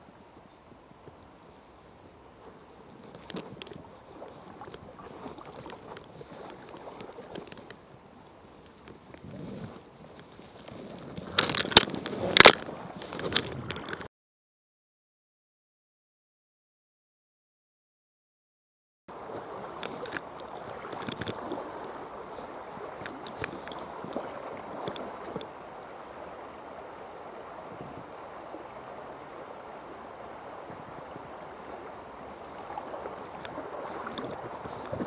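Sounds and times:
river current rushing: 19.1 - 35.0.

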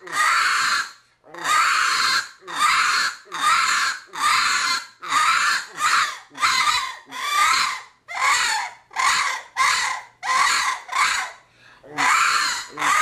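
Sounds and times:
squalling raccoon call: 0.0 - 13.0.

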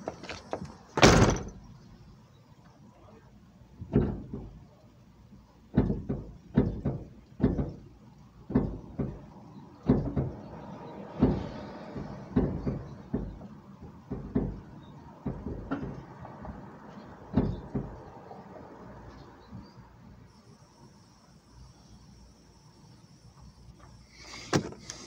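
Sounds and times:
knocks and thumps on car hood: 0.6 - 1.6, 3.8 - 4.6, 5.7 - 7.9, 8.5 - 10.5, 11.1 - 16.7, 17.3 - 18.0.

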